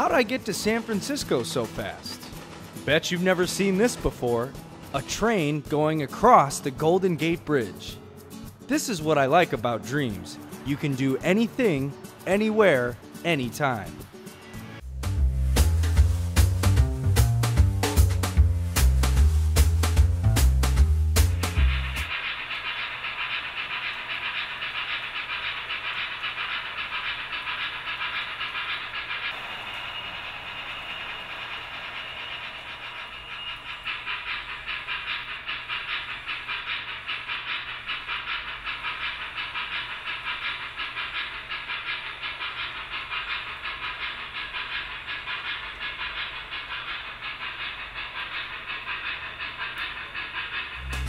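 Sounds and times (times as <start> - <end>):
hiss of steam: 0.0 - 7.4, 15.4 - 17.2, 21.4 - 51.0
steam locomotive chuffing: 0.0 - 51.0.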